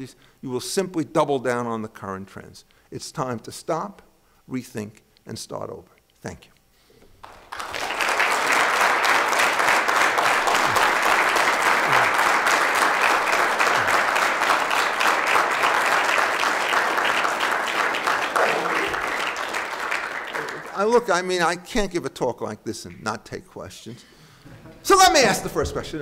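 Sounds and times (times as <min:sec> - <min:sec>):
audience applauding: 0:07.2 - 0:21.3.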